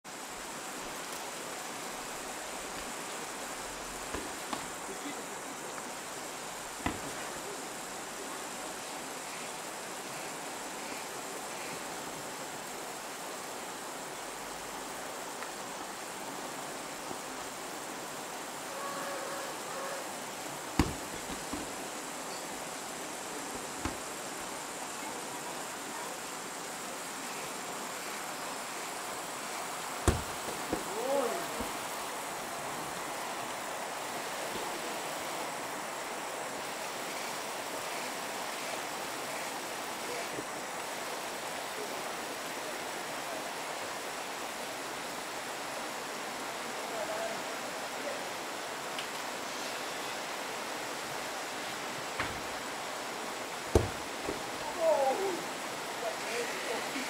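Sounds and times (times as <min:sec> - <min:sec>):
outdoor background hiss: 0:00.0 - 0:57.0
sharp knocks: 0:06.8 - 0:07.2, 0:20.8 - 0:21.8, 0:30.0 - 0:31.0, 0:53.7 - 0:54.6.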